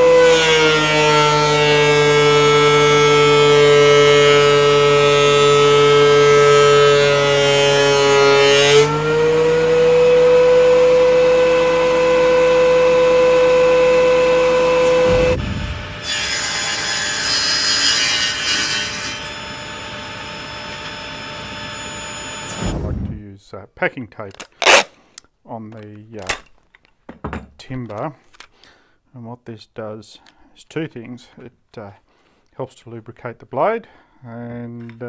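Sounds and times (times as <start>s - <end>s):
thickness planer whining: 0.0s - 23.2s.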